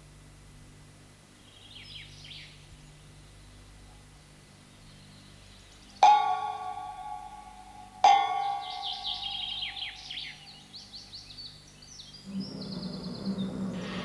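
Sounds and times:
low steady hum: 0:00.0 - 0:14.0
faint bird-like chirps: 0:04.7 - 0:14.0
loud bell stroke ringing: 0:06.0 - 0:10.2.

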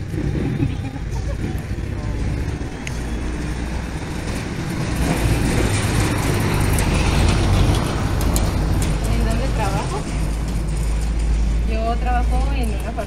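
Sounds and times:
heavy vehicle passing: 0:00.0 - 0:13.0
street traffic rumbling: 0:00.0 - 0:13.0.

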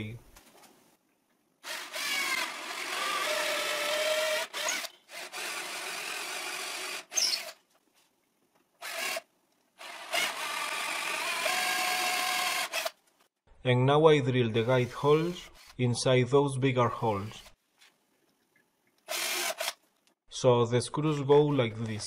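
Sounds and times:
cordless drill boring into wood: 0:01.6 - 0:07.6, 0:08.8 - 0:09.2, 0:09.8 - 0:13.0, 0:19.1 - 0:19.8.

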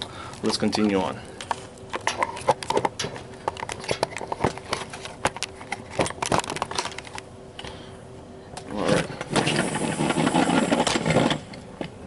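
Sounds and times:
faint steady hum: 0:00.0 - 0:12.0
camera handling clicks and rustles: 0:01.4 - 0:07.3.

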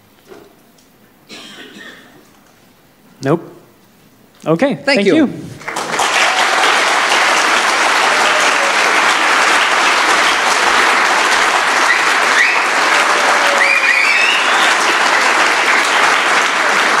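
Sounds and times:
audience applauding: 0:05.6 - 0:17.0
high rising calls from crowd: 0:06.1 - 0:09.6, 0:11.5 - 0:16.0.

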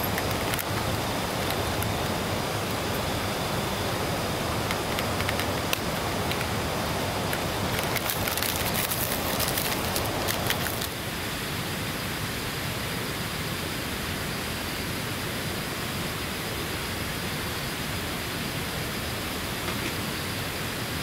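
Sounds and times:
sharp raindrop ticks: 0:00.0 - 0:02.8, 0:04.6 - 0:06.6, 0:07.2 - 0:11.0
heavy rain: 0:00.0 - 0:21.0.

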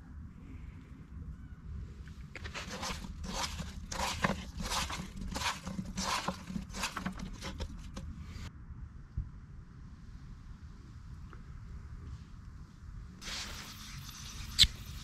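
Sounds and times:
tofu scraping in skillet: 0:02.4 - 0:07.7.

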